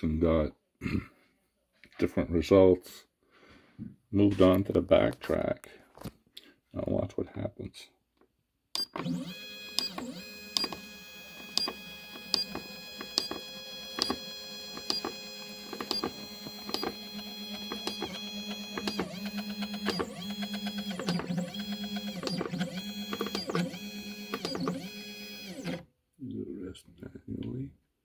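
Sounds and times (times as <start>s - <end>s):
stepper motor whining: 8.8s - 25.8s.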